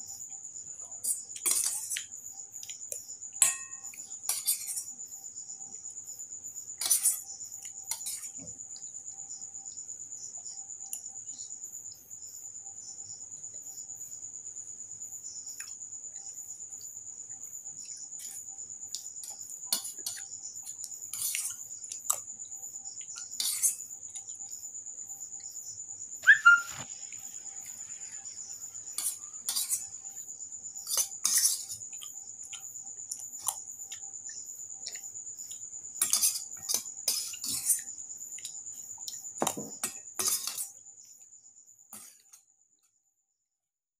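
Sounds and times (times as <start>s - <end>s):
metal spoon scraping a bowl: 1.0s - 2.0s, 3.4s - 4.9s, 6.8s - 7.2s, 21.1s - 21.5s, 23.4s - 23.8s, 29.0s - 29.9s, 30.8s - 31.8s, 36.0s - 37.8s, 39.8s - 40.7s.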